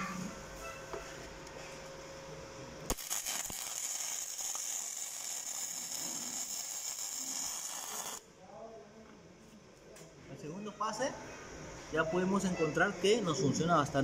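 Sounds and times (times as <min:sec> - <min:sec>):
welding arc crackling sizzle: 0:02.8 - 0:08.3.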